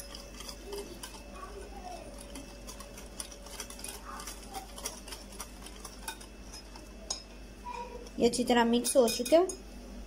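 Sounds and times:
whisk clicking against glass bowl: 0.0s - 7.3s.

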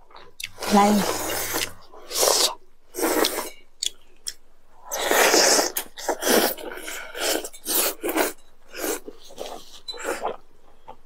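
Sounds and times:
noodles being slurped: 0.6s - 3.6s, 5.0s - 10.3s.

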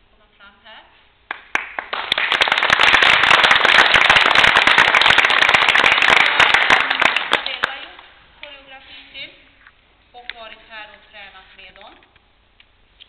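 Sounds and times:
audience applauding: 1.3s - 7.8s.

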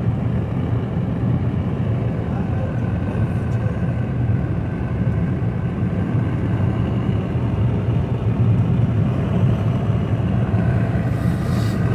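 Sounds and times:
car road and engine noise: 0.0s - 11.9s.

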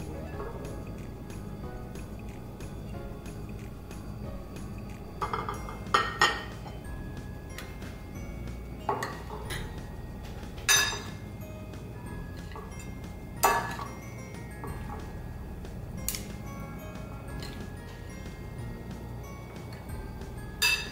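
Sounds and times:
light background music: 0.0s - 20.9s
cutlery clinking on ceramic bowl: 5.2s - 6.8s, 8.8s - 9.8s, 10.6s - 11.2s, 12.4s - 14.0s, 20.6s - 20.9s.

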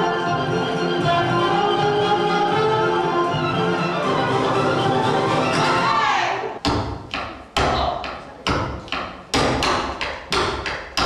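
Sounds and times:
flamenco music with vocals: 0.0s - 11.0s
flamenco footwork stamps on stage: 6.6s - 11.0s.

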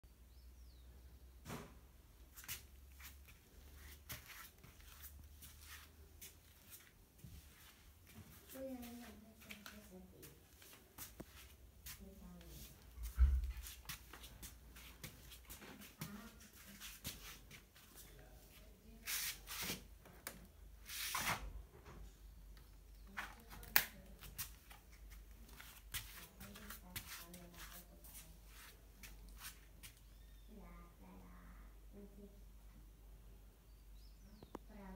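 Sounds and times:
hands rubbing and rustling: 2.3s - 19.9s, 23.1s - 30.0s.

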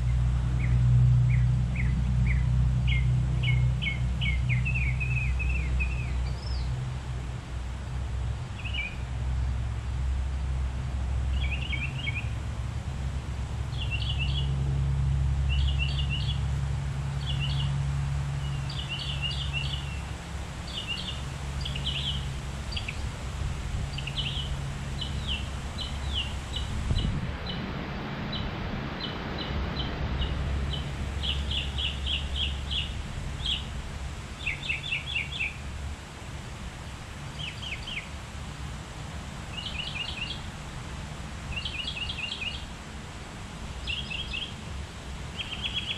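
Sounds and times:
songbirds chirping: 0.0s - 12.5s, 13.4s - 27.7s, 28.3s - 42.8s, 43.6s - 45.9s
rushing noise: 20.0s - 34.4s.

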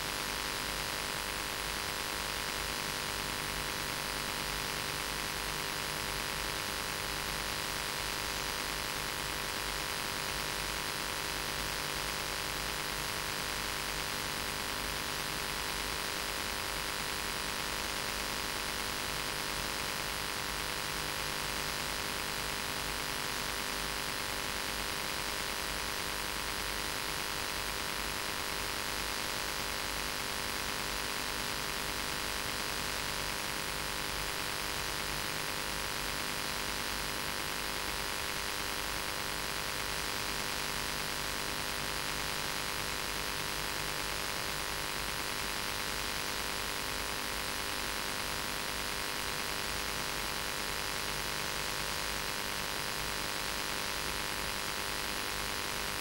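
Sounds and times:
static hiss: 0.0s - 56.0s.

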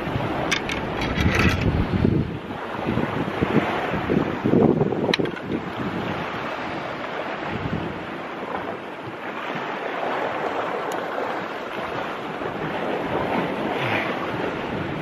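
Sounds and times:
sea waves washing on rocks: 0.0s - 15.0s
wind blowing across microphone: 0.0s - 15.0s.

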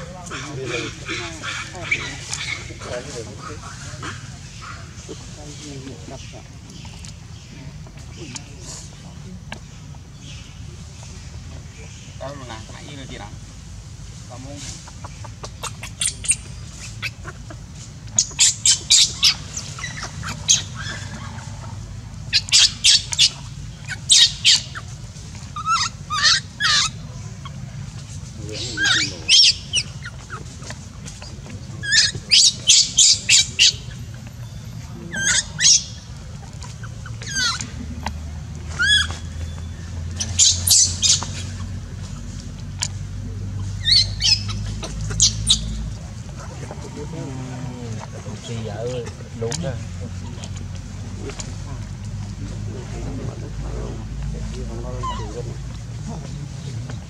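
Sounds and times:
infant monkey screaming: 18.2s - 27.5s, 28.5s - 30.5s, 31.8s - 34.0s, 35.1s - 36.0s, 36.8s - 37.8s, 38.7s - 39.2s, 40.2s - 41.6s, 43.7s - 45.8s, 55.0s - 55.6s.

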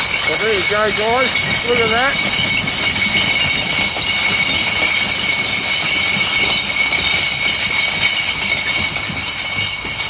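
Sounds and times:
glass bottles clattering: 0.0s - 10.0s.

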